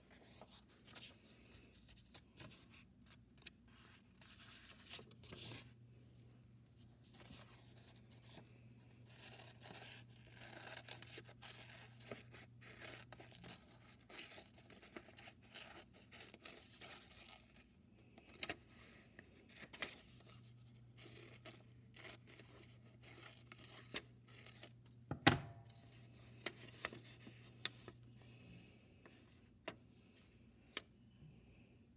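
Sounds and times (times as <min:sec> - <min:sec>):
paper rustling: 0:09.0 - 0:24.8, 0:25.7 - 0:28.4.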